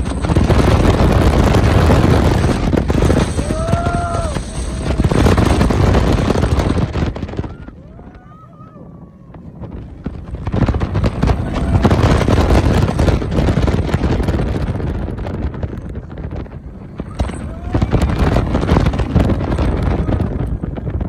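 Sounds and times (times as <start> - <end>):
roller coaster train rumbling: 0.0 - 21.0
wind rushing over microphone: 0.0 - 21.0.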